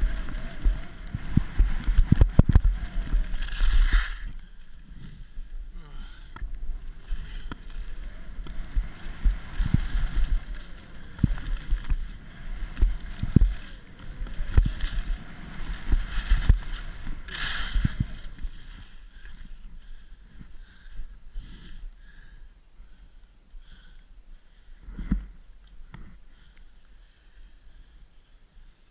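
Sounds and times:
skis scraping on snow: 0.0 - 5.4, 6.7 - 20.6.

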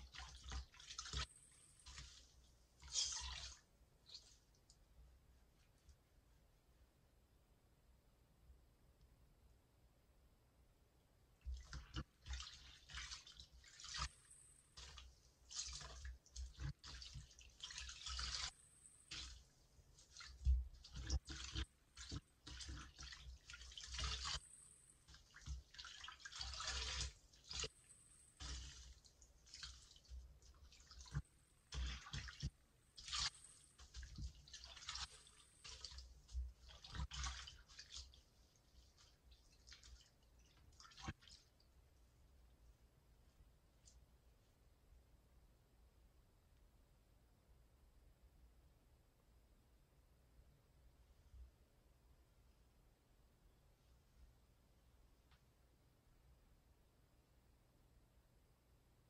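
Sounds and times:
water dripping and splashing: 0.0 - 4.8, 11.4 - 41.7
wet sponges squishing: 0.0 - 6.0, 11.4 - 42.0.

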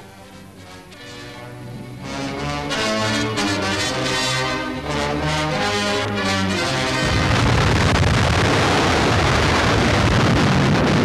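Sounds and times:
brass-heavy orchestral music: 0.0 - 8.3
huge explosion rumble: 6.7 - 11.0.

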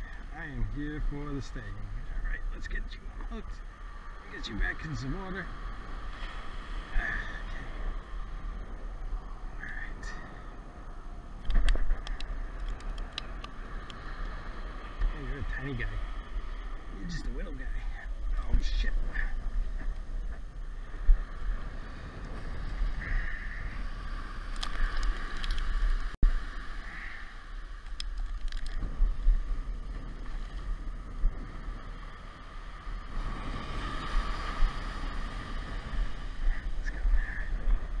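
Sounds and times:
surf washing on sand: 0.0 - 38.0
wind buffeting microphone: 0.0 - 38.0
light clicks: 11.4 - 14.0, 24.5 - 25.8, 27.8 - 28.9.

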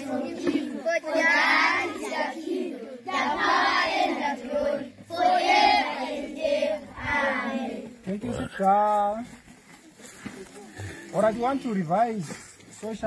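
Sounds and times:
children singing in unison: 0.0 - 7.9.

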